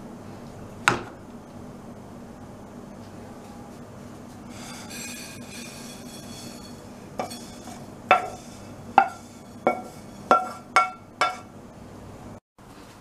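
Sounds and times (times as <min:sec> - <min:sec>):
spatula clinking on pan: 0:07.2 - 0:11.5.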